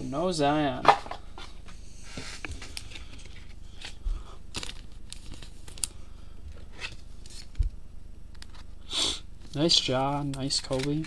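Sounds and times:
cards and wrappers crinkling: 2.6 - 6.0, 9.4 - 11.0.

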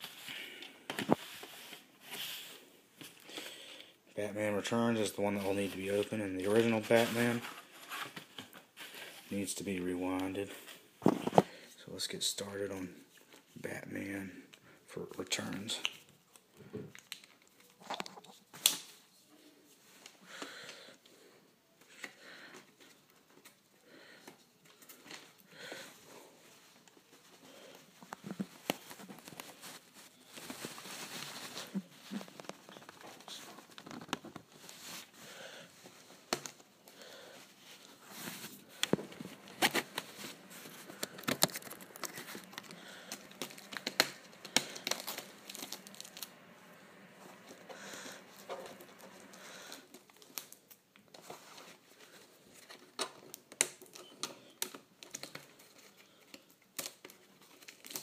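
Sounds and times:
plastic shrink-wrap crinkling and tearing: 28.2 - 35.1, 37.7 - 46.8, 47.4 - 58.0.

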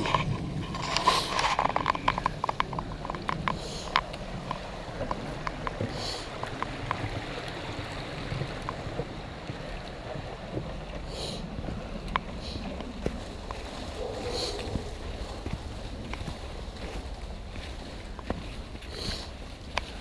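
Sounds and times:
steady rushing hiss: 0.0 - 15.8
footsteps on wooden footbridge: 0.0 - 20.0.

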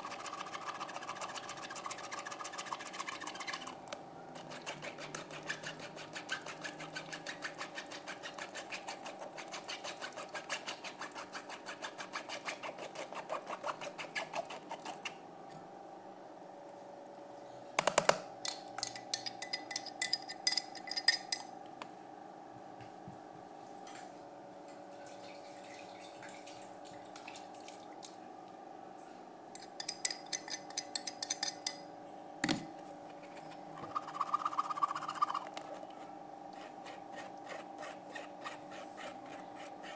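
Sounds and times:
spoon scraping in a sieve: 0.0 - 3.8, 4.4 - 15.1, 33.1 - 39.9.

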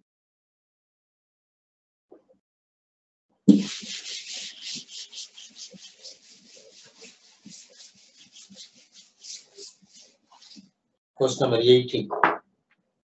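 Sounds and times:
chalkboard being wiped: 3.5 - 10.7.

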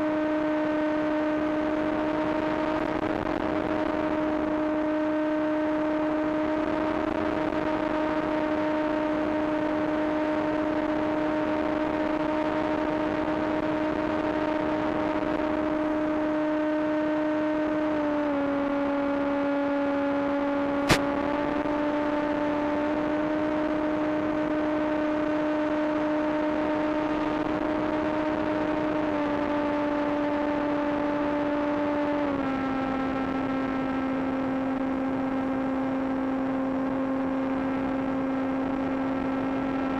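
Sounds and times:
electric motor and propeller whine: 0.0 - 39.9.

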